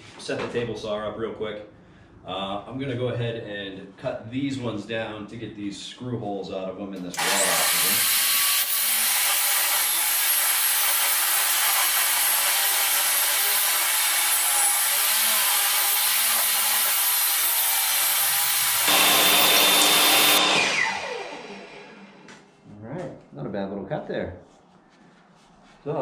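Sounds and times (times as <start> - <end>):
saw blade spinning down: 7.0 - 22.3
table saw cutting boards: 7.1 - 22.4.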